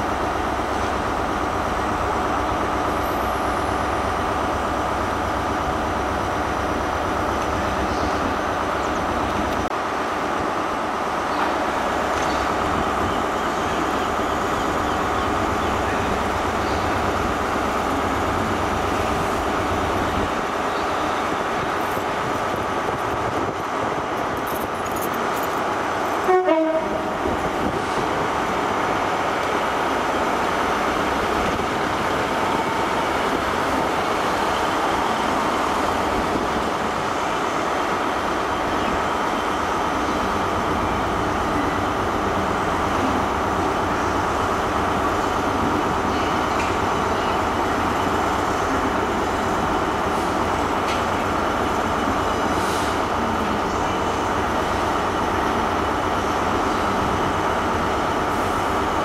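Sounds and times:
diesel locomotive engine running: 0.0s - 59.0s
train horn toot: 26.2s - 27.2s.

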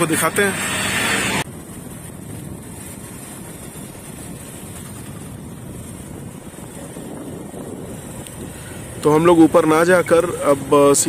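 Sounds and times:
vehicle running noise: 0.0s - 11.0s
wind rumble on microphone: 0.0s - 11.0s.

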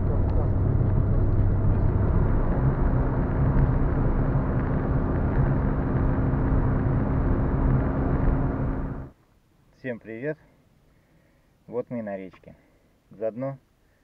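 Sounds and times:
car engine drone: 0.0s - 9.1s
tyre and road noise: 0.0s - 9.2s.

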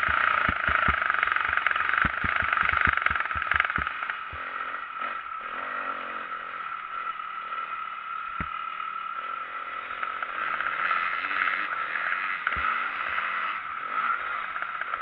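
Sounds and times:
sharp knock: 0.0s - 4.0s
motorbike engine running: 0.0s - 15.0s.

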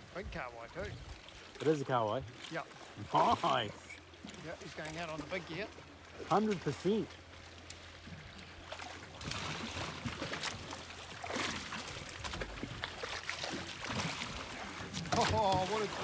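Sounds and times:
fish splashing at water surface: 7.6s - 16.0s
wash of water: 8.6s - 16.0s.

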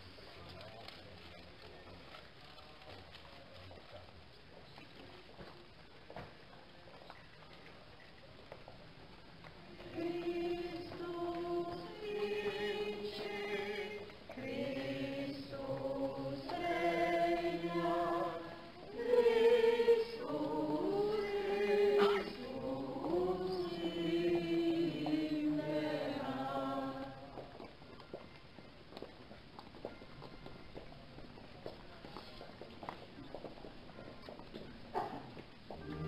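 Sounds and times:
group singing a religious chant: 9.8s - 27.4s.

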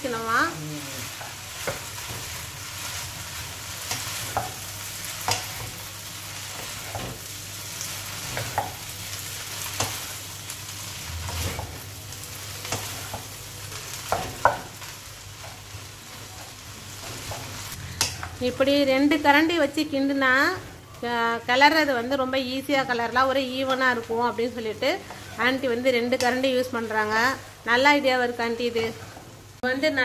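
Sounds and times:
noodles sizzling in a wok: 0.0s - 30.0s
spatulas scraping and knocking pan: 6.5s - 7.2s, 11.2s - 11.9s, 23.6s - 27.2s.

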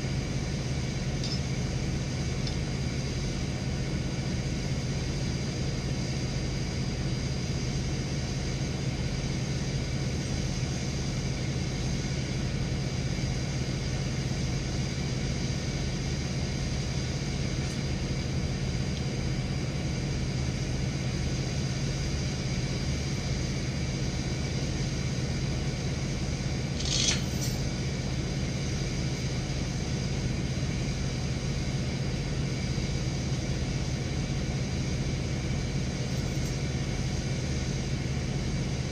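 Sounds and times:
truck engine running: 0.0s - 38.9s
sharp squeak or clank: 26.8s - 27.7s.

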